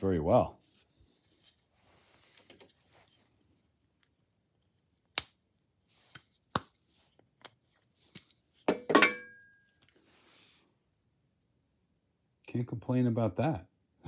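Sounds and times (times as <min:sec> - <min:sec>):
soft rustling: 0:00.6 - 0:03.8.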